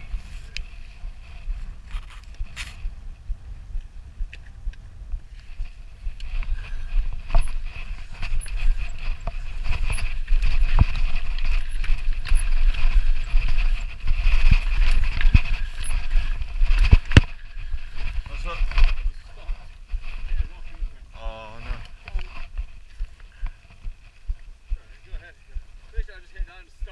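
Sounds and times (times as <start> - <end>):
low rumble: 0.0 - 23.1
bike chain and frame clattering: 5.5 - 19.1.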